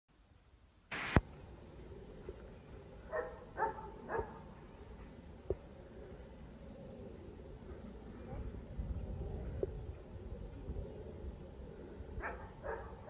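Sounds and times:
dog barking: 0:03.1 - 0:04.4, 0:12.2 - 0:13.0.

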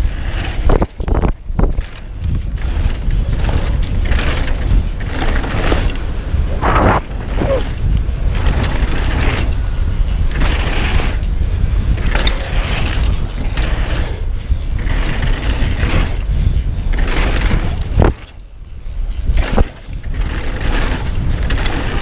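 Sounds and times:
bike chain and frame rattling: 0:00.0 - 0:22.0
wind rumble on microphone: 0:00.0 - 0:22.0
tyres scrubbing through dirt: 0:05.3 - 0:07.8.

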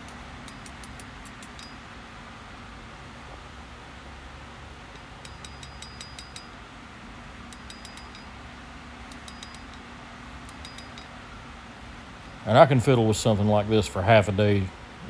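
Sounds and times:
steady low hum: 0:00.0 - 0:15.0
high anvil ring: 0:00.4 - 0:02.0, 0:05.0 - 0:06.6, 0:07.6 - 0:08.4, 0:09.2 - 0:09.9, 0:10.5 - 0:11.2
hammer tapping knife on anvil: 0:04.9 - 0:06.6, 0:07.5 - 0:08.3, 0:09.1 - 0:09.8, 0:10.5 - 0:11.1.

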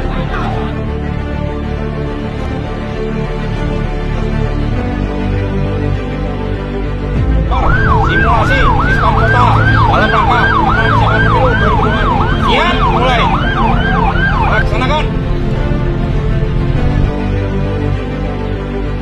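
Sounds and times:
police siren yelping: 0:07.5 - 0:14.9.

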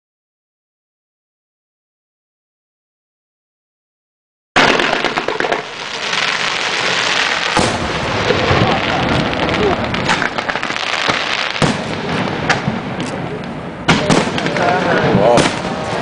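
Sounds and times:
fireworks crackling and popping: 0:04.6 - 0:16.0
loud firework bangs: 0:04.6 - 0:16.0.

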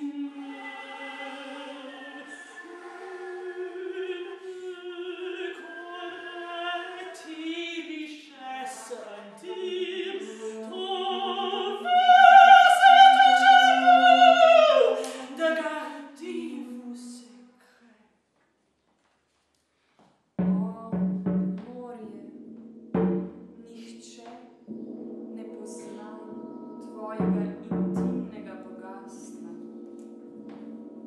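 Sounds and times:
flute playing: 0:00.0 - 0:05.2
woman singing with vibrato: 0:00.0 - 0:17.4, 0:20.4 - 0:21.0, 0:21.6 - 0:22.3, 0:25.4 - 0:29.8.

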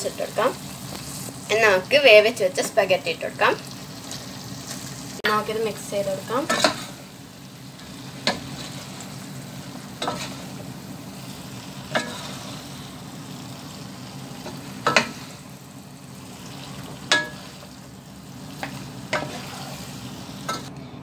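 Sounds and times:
food sizzling in a frying pan: 0:00.0 - 0:20.7
spatula knocking against pan: 0:14.8 - 0:15.2, 0:17.1 - 0:17.4.

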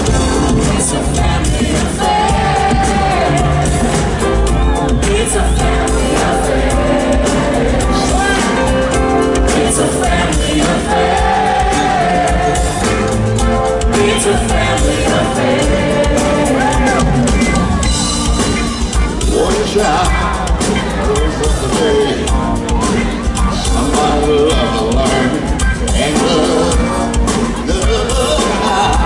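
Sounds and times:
person singing: 0:00.0 - 0:13.2, 0:13.8 - 0:17.7, 0:19.2 - 0:29.0
funk band playing live: 0:00.0 - 0:29.0.

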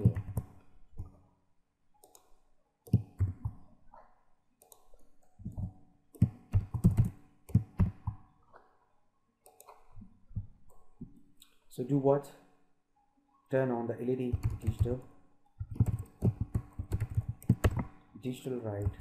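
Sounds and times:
typing on computer keyboard: 0:00.0 - 0:00.6, 0:04.6 - 0:08.1, 0:14.3 - 0:15.0, 0:15.6 - 0:18.0, 0:18.7 - 0:19.0.

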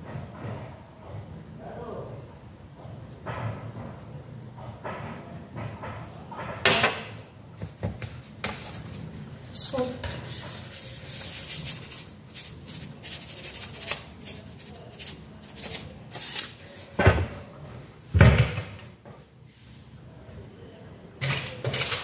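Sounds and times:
salt shaker rattling: 0:10.3 - 0:16.6.

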